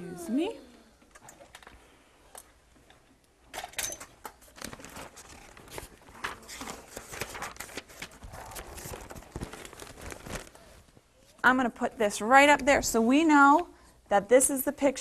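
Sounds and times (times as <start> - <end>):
chart paper rustling and crinkling: 4.2 - 11.4.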